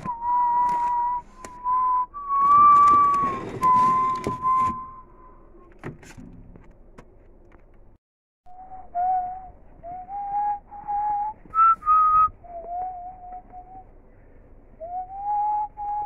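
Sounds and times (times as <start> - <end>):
person whistling a tune: 0.0 - 5.4, 8.5 - 13.9, 14.8 - 16.0.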